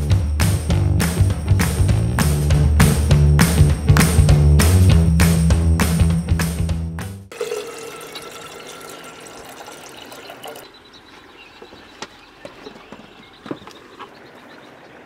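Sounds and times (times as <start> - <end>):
water poured into cup: 7.3 - 10.7.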